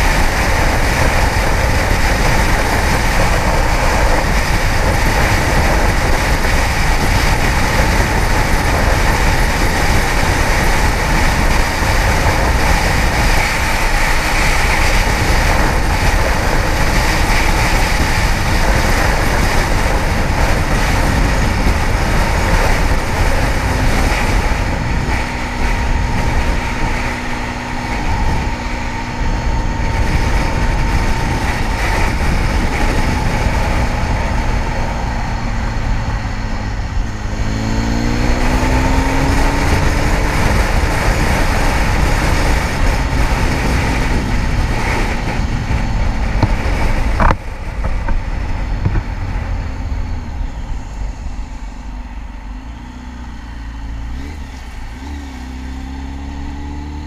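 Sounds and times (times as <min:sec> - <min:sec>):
motorcycle engine running: 0:00.0 - 0:57.0
rushing wind noise: 0:00.0 - 0:57.0
steady low hum: 0:40.4 - 0:56.2.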